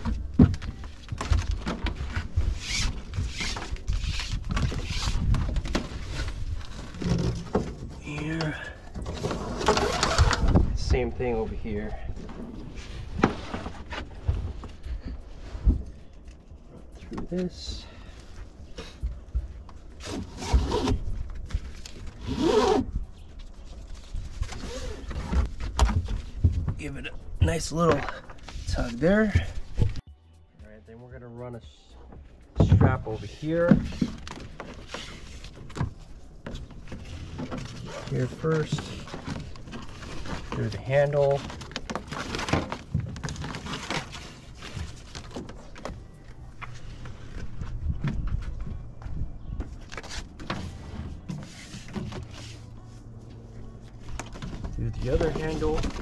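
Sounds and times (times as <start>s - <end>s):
low wind rumble on microphone: 0.0s - 8.1s, 9.0s - 13.3s, 46.1s - 51.3s
webbing straps rustling and sliding: 0.9s - 17.7s, 18.3s - 27.0s, 33.0s - 48.6s, 49.8s - 56.0s
strap pulled through buckle: 21.7s - 22.9s.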